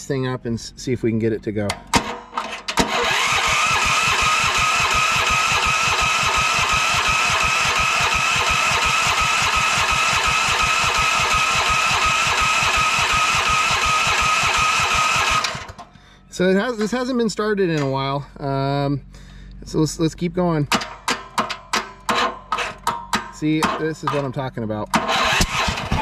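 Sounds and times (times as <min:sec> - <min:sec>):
engine cranking with electric starter: 0:01.9 - 0:16.0, 0:21.9 - 0:22.9, 0:24.9 - 0:26.0.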